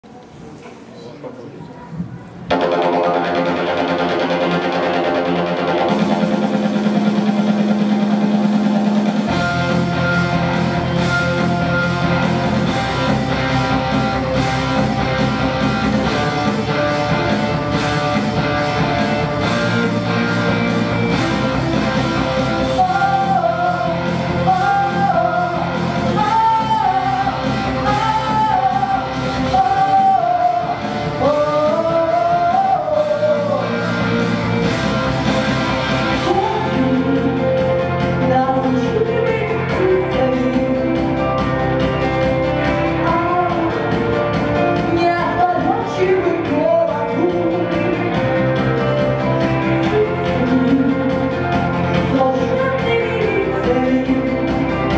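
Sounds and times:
pop song accompaniment: 2.5 - 54.9
girl singing: 22.6 - 33.8.

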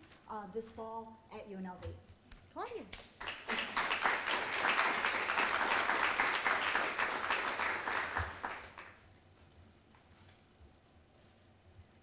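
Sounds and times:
audience applauding: 3.2 - 9.0.

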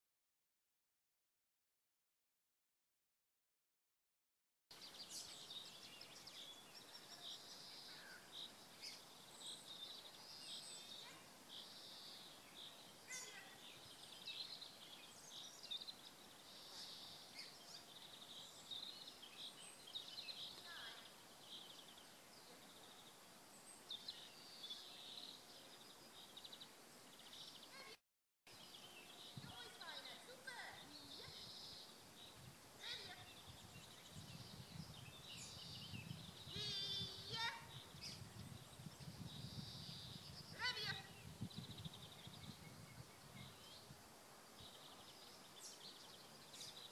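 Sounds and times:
songbirds chirping and trilling: 4.7 - 46.9
steady background hiss: 4.8 - 27.8, 43.0 - 46.9.

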